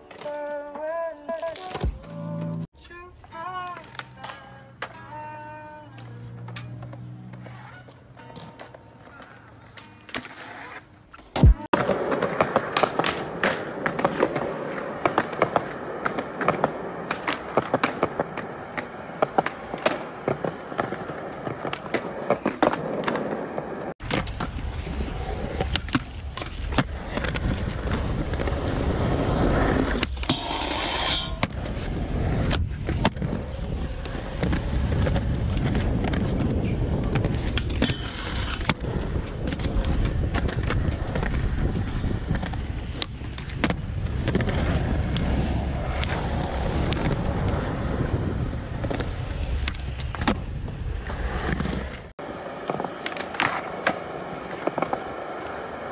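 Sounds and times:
skateboard wheels rolling: 0.0 - 55.9
skateboard clacks: 11.4 - 24.8, 49.0 - 55.9.

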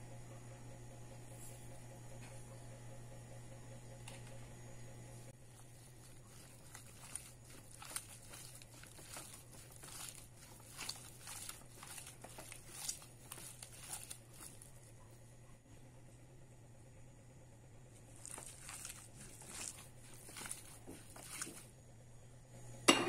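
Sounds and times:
low steady hum: 0.0 - 23.0
hand mixing meat in a bowl: 5.4 - 15.2, 18.0 - 21.7.

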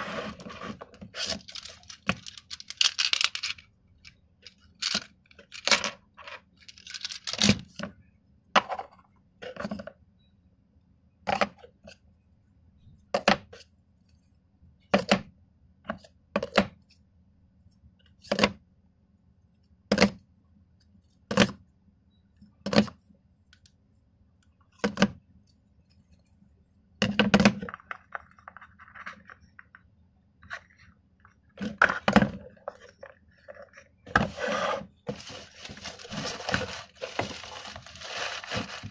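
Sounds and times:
plastic cups rattling: 0.0 - 3.6, 4.7 - 7.6, 31.5 - 38.9.

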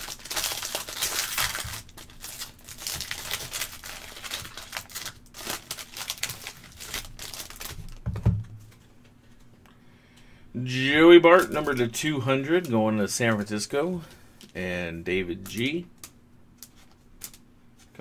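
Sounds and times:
foil wrapper crinkling: 0.0 - 8.1, 11.3 - 12.0.

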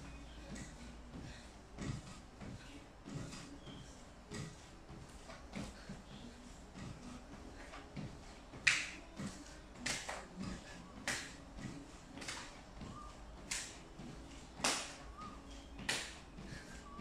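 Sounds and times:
trampoline mat thumps: 7.6 - 12.5, 13.4 - 15.0.

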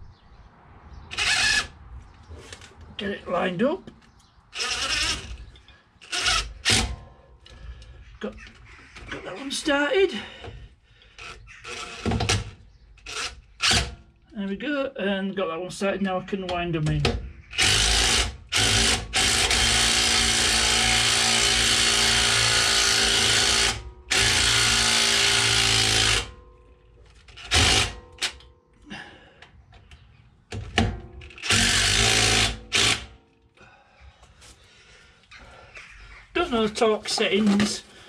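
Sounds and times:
impact driver whirring: 1.1 - 1.8, 4.6 - 7.0, 11.2 - 13.9, 17.5 - 26.3, 27.3 - 28.3, 31.3 - 33.2.

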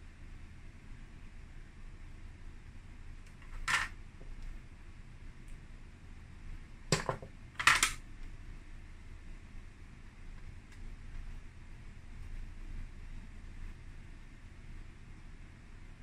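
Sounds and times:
steady low background hum: 0.0 - 16.0
plastic objects clicking and knocking: 3.4 - 3.9, 6.9 - 8.0.

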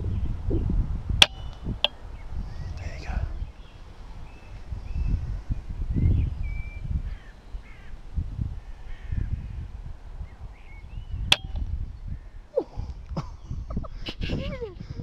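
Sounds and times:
low uneven rumble: 0.0 - 13.8
faint bird chirps: 0.0 - 14.0.

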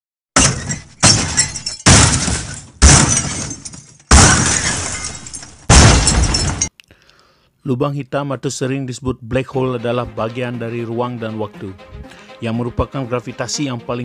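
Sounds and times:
crashing shattering hits: 0.4 - 6.7.

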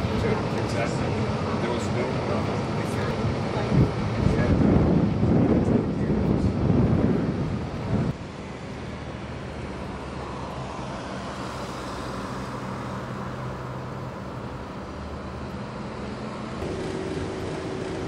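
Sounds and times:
cars driving past: 7.0 - 18.0.

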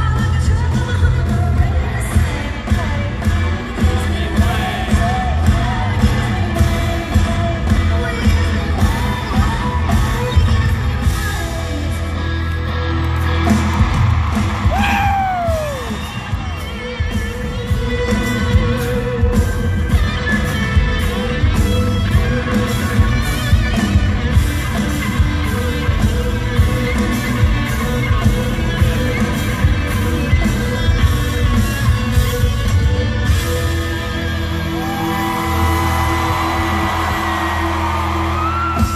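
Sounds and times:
person singing: 0.0 - 12.6
drums: 0.0 - 38.9
electric guitars: 0.0 - 38.9
loud falling whoop: 14.6 - 16.0, 34.8 - 38.9.

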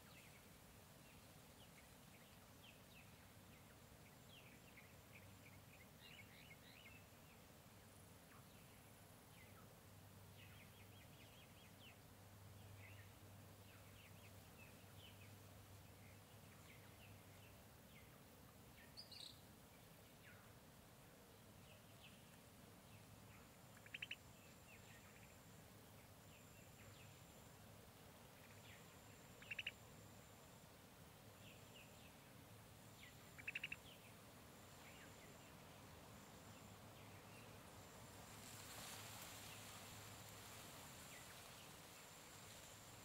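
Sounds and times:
bird chirps: 23.3 - 25.4, 28.4 - 29.9, 32.9 - 34.2
rapid bird trills: 23.7 - 24.3, 29.3 - 29.9, 33.1 - 34.1.

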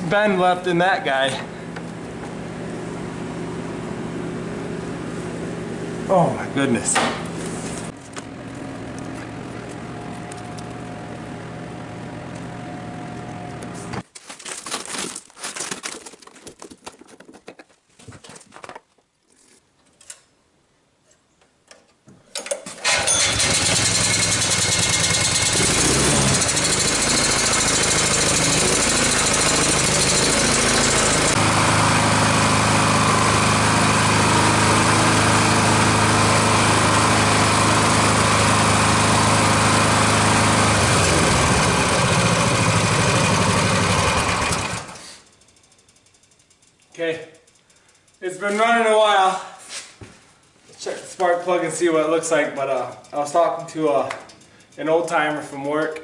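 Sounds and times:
small gas engine running: 7.8 - 14.0, 22.8 - 48.2.

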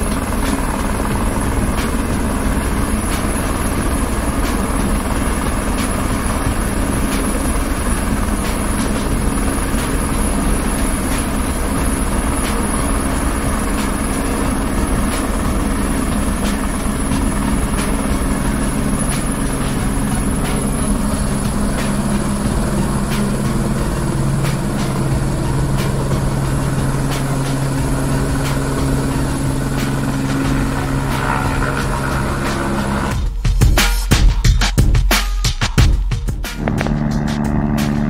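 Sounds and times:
high turbine whine: 0.0 - 33.3, 36.5 - 38.0
helicopter rotor beat: 0.0 - 34.9, 35.6 - 38.0.

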